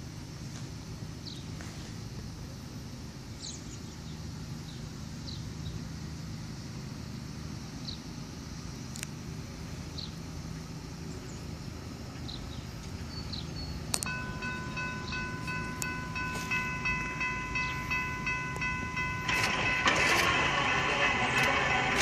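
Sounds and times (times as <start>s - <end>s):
diesel freight train rumble: 0.0s - 22.0s
high ringing warning signal: 14.0s - 22.0s.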